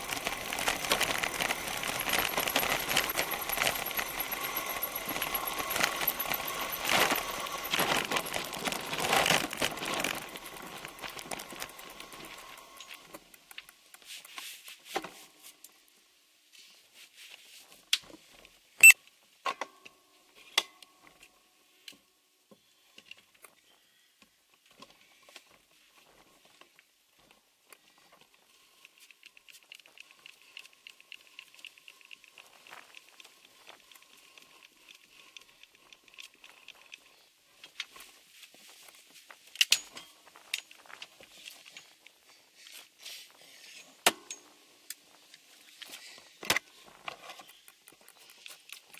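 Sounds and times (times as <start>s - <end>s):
bicycle tyres crunching on gravel: 0.0s - 13.1s
faint high chirring: 0.2s - 13.1s.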